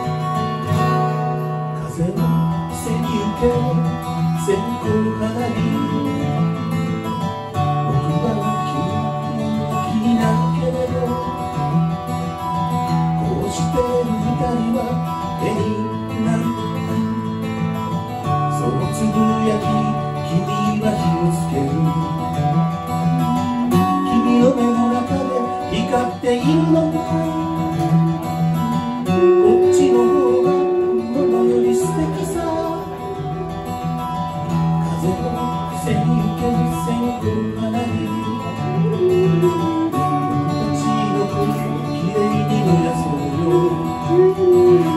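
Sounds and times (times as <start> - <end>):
acoustic guitar strumming: 0.0 - 44.9
long held melody notes: 21.1 - 44.9.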